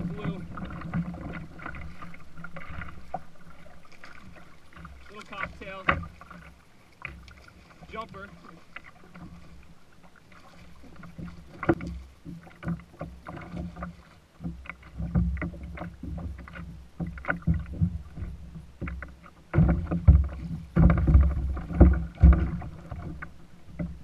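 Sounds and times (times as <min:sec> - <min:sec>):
loud thumps against hull: 0:04.8 - 0:06.4, 0:11.1 - 0:24.0
knocks and clicks of gear: 0:11.1 - 0:24.0.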